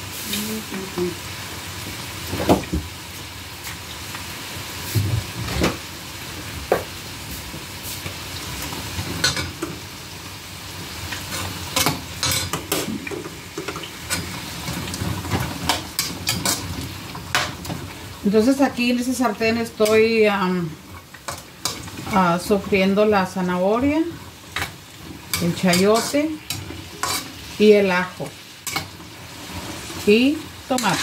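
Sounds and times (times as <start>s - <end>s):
vegetables sizzling in a skillet: 0.0s - 31.0s
spatula scraping a pan: 11.1s - 17.9s, 24.2s - 27.6s, 28.3s - 31.0s.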